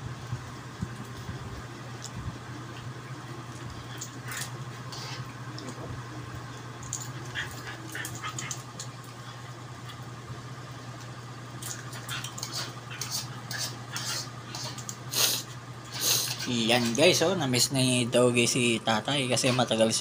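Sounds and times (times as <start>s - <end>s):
steady low hum: 0.0s - 20.0s
dog claws scrabbling and clicking: 6.8s - 10.0s, 11.6s - 15.0s.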